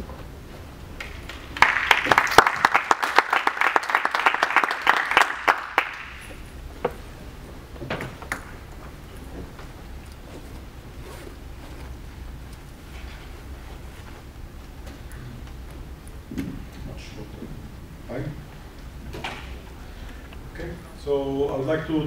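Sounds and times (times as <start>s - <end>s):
audience applauding: 1.0s - 6.4s.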